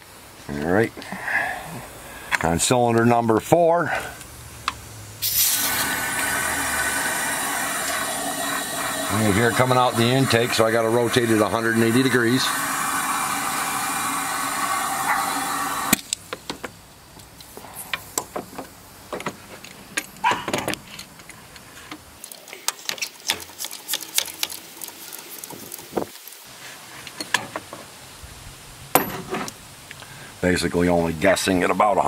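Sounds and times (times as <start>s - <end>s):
compressed air hissing: 5.2s - 16.1s.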